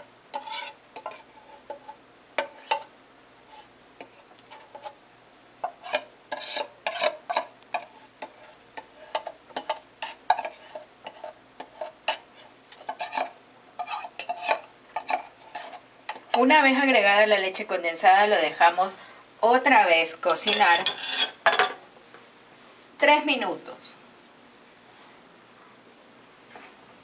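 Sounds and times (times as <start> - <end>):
metal spoon scraping in tin: 0.4 - 2.8.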